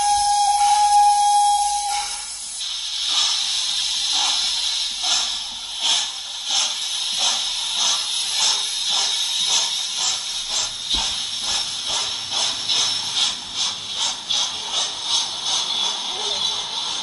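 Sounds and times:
steam train whistle: 0.0s - 2.4s
steam locomotive chuffing: 0.0s - 17.0s.

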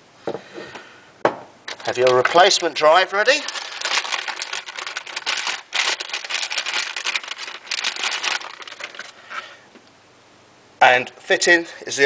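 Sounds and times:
metallic bag crinkling: 1.7s - 9.6s.

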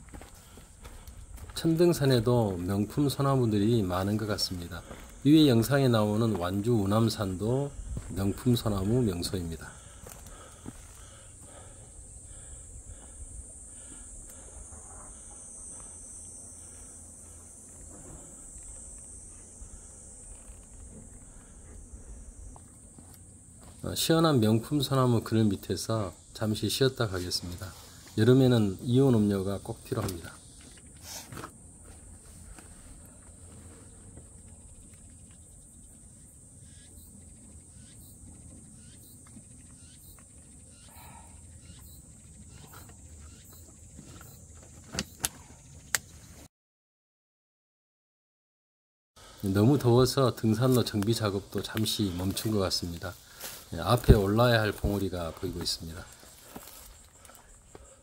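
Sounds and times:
insects shrilling: 0.4s - 46.1s, 49.2s - 58.0s
low wind rumble: 1.0s - 15.3s
bird chirps: 36.6s - 44.4s.

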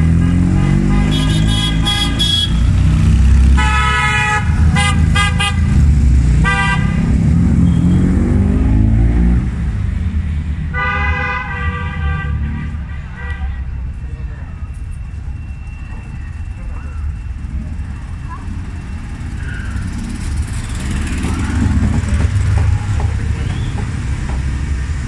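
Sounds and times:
car horns tooting: 0.0s - 2.8s, 3.6s - 5.8s, 6.4s - 8.1s, 10.7s - 13.7s
car engines revving: 0.0s - 11.2s, 12.2s - 25.0s.

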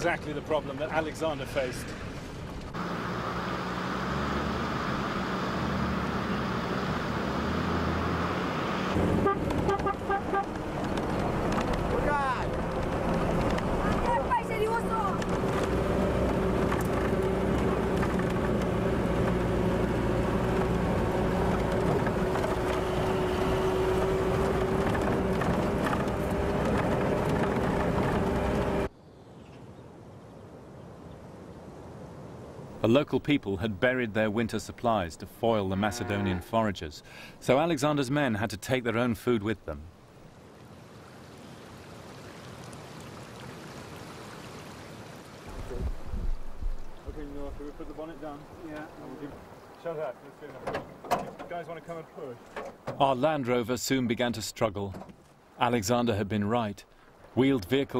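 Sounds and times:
faint outdoor background: 0.0s - 57.9s
vehicle engine and cab drone: 1.9s - 28.9s
river rushing over stones: 8.9s - 28.9s, 39.4s - 52.5s.

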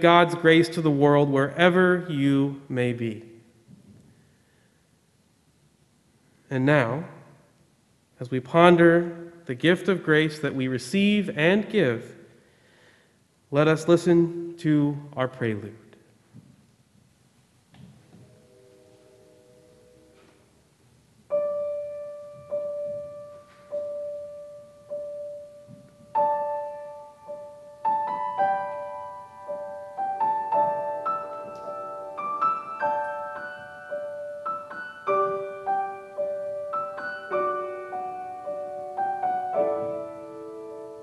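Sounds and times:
grand piano playing: 0.0s - 3.2s, 18.1s - 41.0s.

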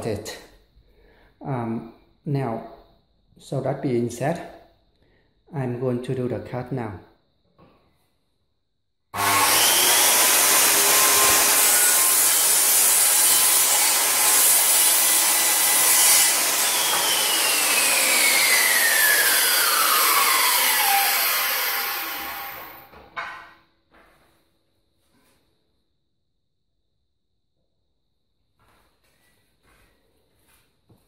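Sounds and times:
circular saw cutting chipboard: 9.2s - 22.9s
saw blade winding down whine: 9.2s - 23.0s.

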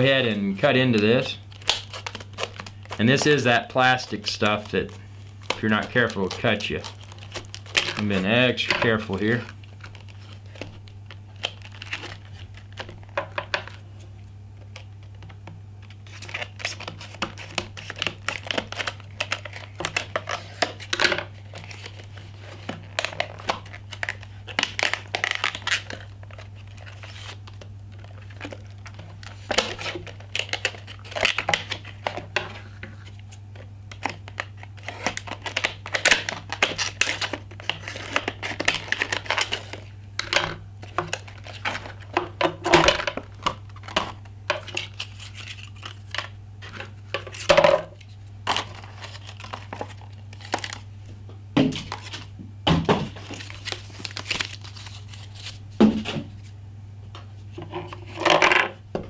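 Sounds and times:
plastic packaging crackling: 0.0s - 13.8s, 14.6s - 50.9s, 53.1s - 55.6s
scissors cutting plastic: 1.0s - 10.0s.

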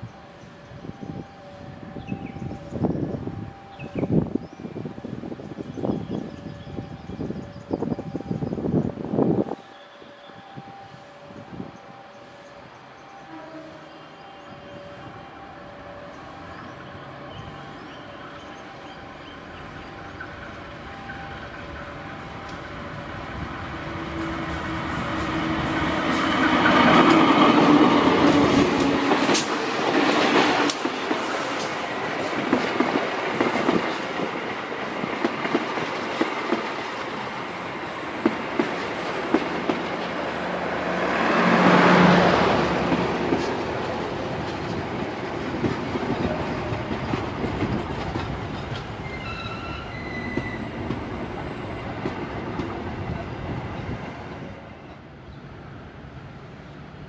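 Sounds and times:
diesel locomotives passing: 0.0s - 57.0s
train wheels clicking on rail joints: 19.4s - 54.1s
high wheel squeal: 49.0s - 52.1s.

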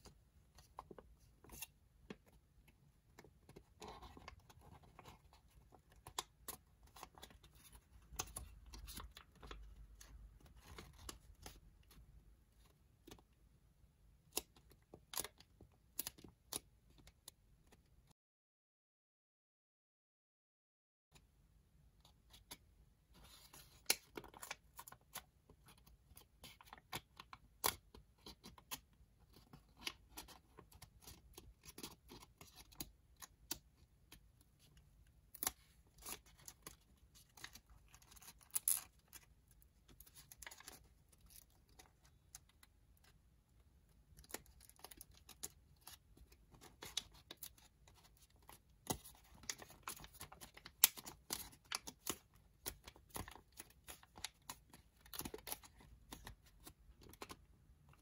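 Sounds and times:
origami paper crinkling: 44.2s - 57.4s.

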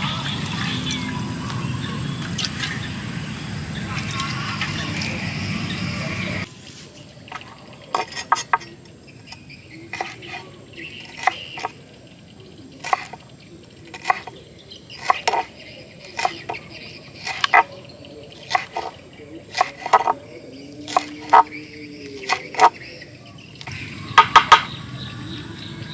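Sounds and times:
cleaver chopping on wooden board: 8.0s - 8.7s, 10.0s - 10.4s, 11.0s - 11.8s, 12.8s - 13.2s, 13.9s - 14.3s, 15.0s - 16.6s, 17.2s - 17.7s, 18.4s - 20.2s, 20.9s - 21.5s, 22.2s - 22.8s.

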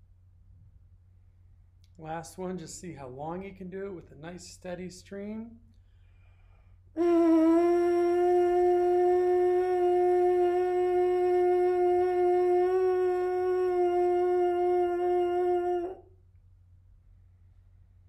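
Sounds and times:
trombone mouthpiece buzz: 7.0s - 16.0s.

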